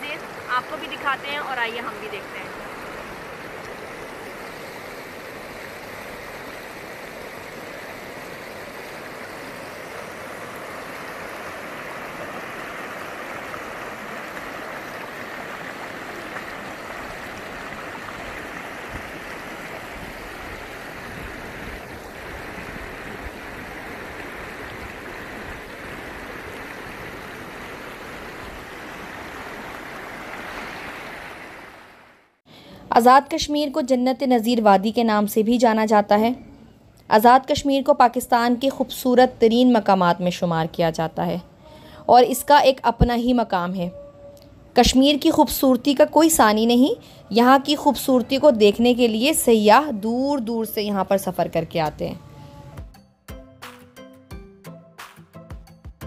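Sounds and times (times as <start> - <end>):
stream rushing over rocks: 0.0 - 32.3.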